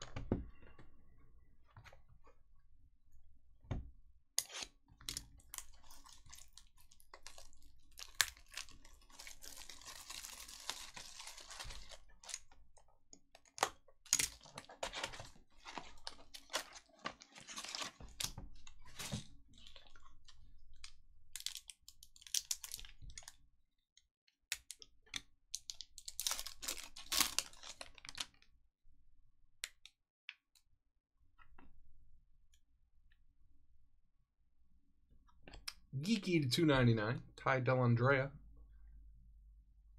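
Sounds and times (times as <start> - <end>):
wrappers crinkling and tearing: 5.4 - 12.6, 13.5 - 23.3, 25.6 - 28.4.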